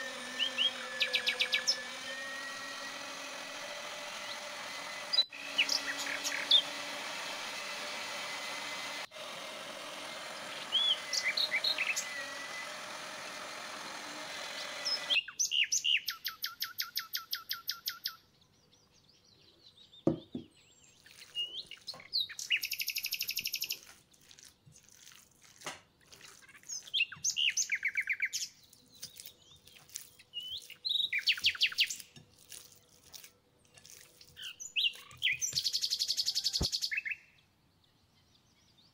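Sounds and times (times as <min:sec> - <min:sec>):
songbirds trilling: 0:00.0 - 0:07.1, 0:10.1 - 0:12.8, 0:14.3 - 0:23.8, 0:25.9 - 0:32.2, 0:33.6 - 0:38.9
electric meat grinder motor running: 0:00.0 - 0:15.2
bird chirps: 0:05.1 - 0:06.7, 0:10.6 - 0:12.1, 0:14.8 - 0:23.9, 0:26.2 - 0:32.1, 0:34.2 - 0:38.9.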